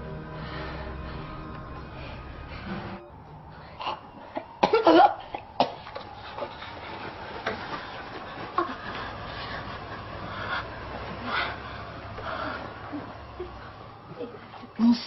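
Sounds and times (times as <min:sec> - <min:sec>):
woman coughing: 0:04.6 - 0:05.8.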